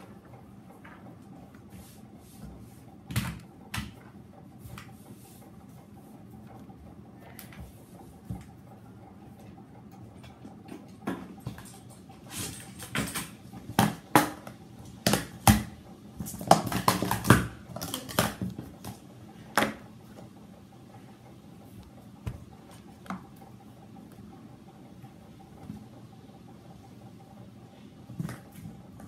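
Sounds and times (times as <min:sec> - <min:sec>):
plastic cups clacking: 0:16.2 - 0:18.9.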